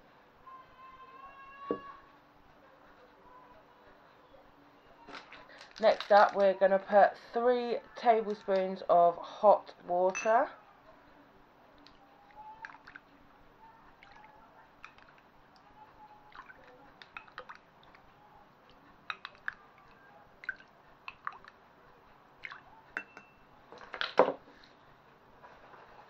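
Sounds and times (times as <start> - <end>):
spoon clinking on glass: 10.1 - 10.4, 19.1 - 19.4, 23.0 - 23.5
water pouring and dripping: 19.1 - 21.6.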